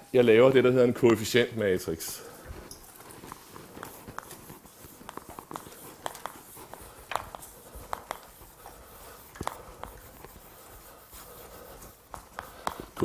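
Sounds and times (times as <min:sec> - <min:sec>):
chalk tapping on blackboard: 0:03.5 - 0:13.0.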